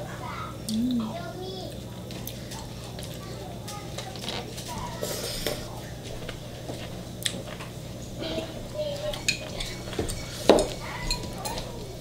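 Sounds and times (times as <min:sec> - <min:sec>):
low steady hum: 0:00.6 - 0:01.4.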